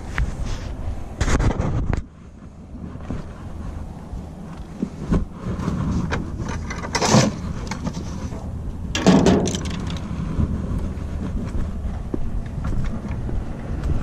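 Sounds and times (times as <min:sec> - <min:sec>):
wind rumbling on microphone: 0:00.0 - 0:14.0
fishing rods scraping and knocking: 0:04.6 - 0:10.2.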